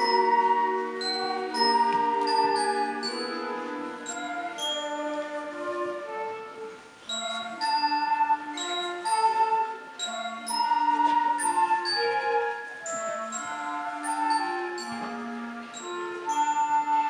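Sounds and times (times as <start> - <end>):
high struck notes ringing: 0.0 - 5.4
wind band playing: 0.0 - 17.0.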